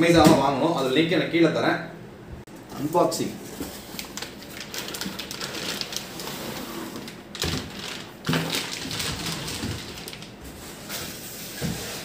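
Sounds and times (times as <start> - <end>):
plastic wrapping crinkling: 3.6 - 11.4.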